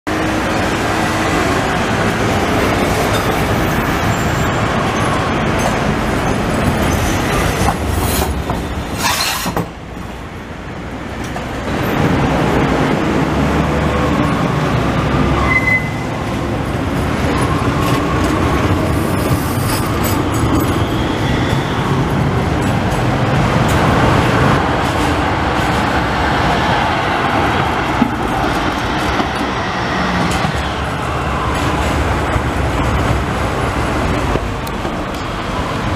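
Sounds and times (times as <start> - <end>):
tram wheels rumbling on rails: 0.1 - 35.9
high wheel squeals: 6.8 - 9.7, 15.3 - 16.2, 17.3 - 22.2.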